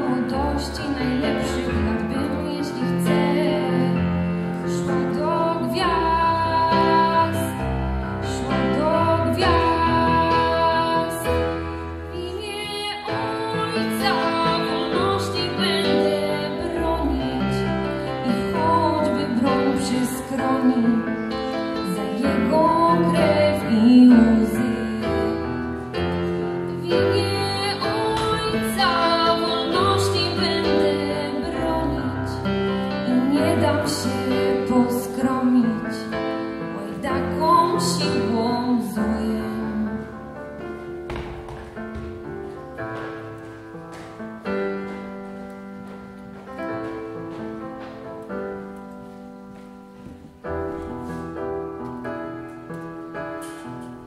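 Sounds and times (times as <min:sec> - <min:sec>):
woman singing into a microphone: 0:00.0 - 0:40.4.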